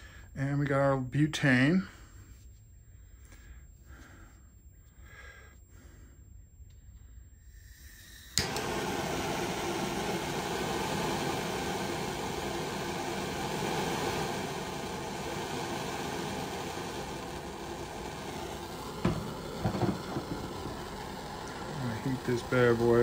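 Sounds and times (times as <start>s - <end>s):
torch flame hissing: 7.4s - 23.0s
torch igniter click: 8.3s - 23.0s.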